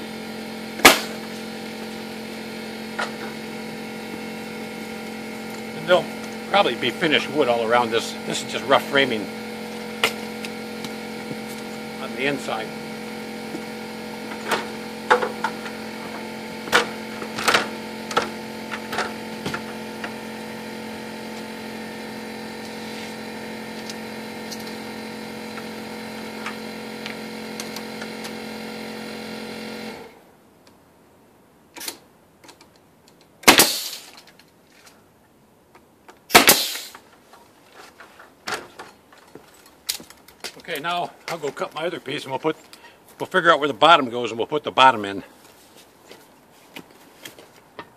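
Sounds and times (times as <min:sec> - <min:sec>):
motor humming: 0:00.0 - 0:30.2
nail gun shots: 0:00.8 - 0:01.2, 0:33.4 - 0:34.1, 0:36.3 - 0:37.0.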